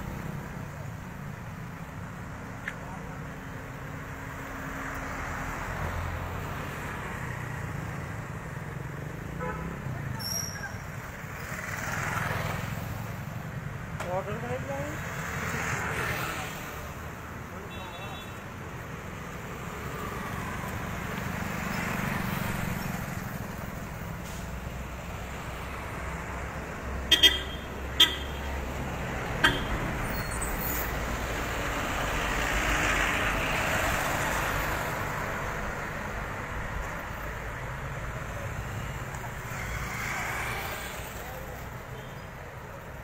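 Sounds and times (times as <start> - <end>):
road traffic passing: 0.0 - 43.0
vehicle horn toots: 27.1 - 28.5, 29.4 - 29.8.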